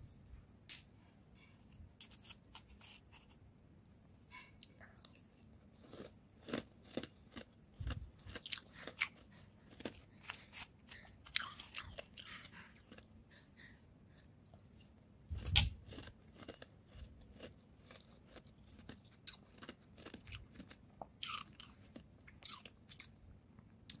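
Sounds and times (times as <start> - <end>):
chewing crunchy frost: 5.0 - 13.1, 15.4 - 23.1.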